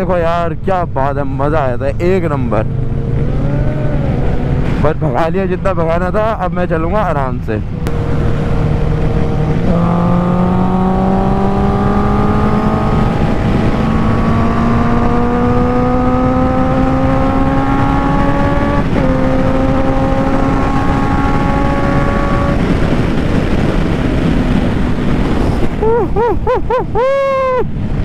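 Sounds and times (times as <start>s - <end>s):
wind rush: 1.9s - 28.0s.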